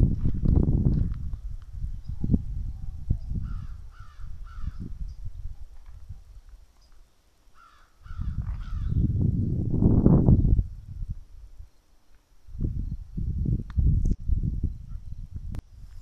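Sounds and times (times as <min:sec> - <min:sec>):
low thumps and rumble: 0:00.0 - 0:01.8
crow cawing: 0:03.4 - 0:04.8, 0:07.6 - 0:09.0.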